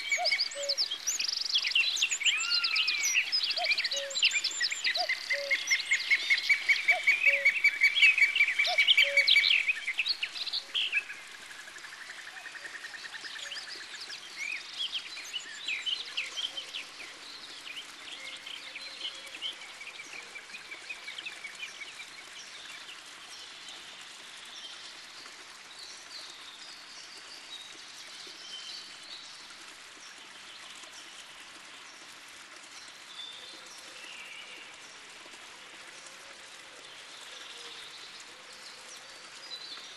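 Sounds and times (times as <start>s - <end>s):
songbirds singing: 0.0s - 25.1s
steady outdoor hiss: 0.0s - 39.9s.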